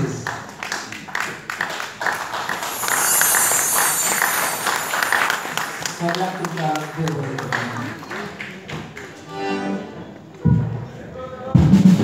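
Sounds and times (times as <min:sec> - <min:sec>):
audience clapping: 0:05.4 - 0:09.2.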